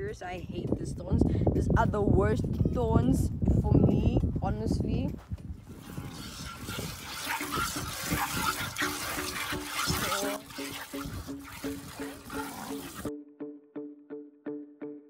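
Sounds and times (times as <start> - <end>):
milk squirting into metal bucket: 5.6 - 13.1.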